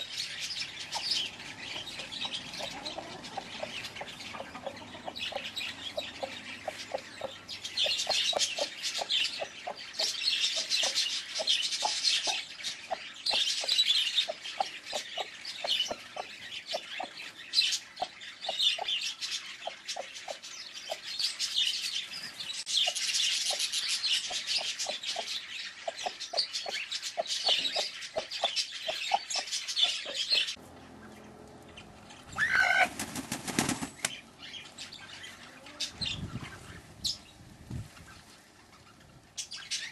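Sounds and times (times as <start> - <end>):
hen clucking: 0.0 - 21.0, 22.8 - 33.7
loud hen call: 32.3 - 33.0.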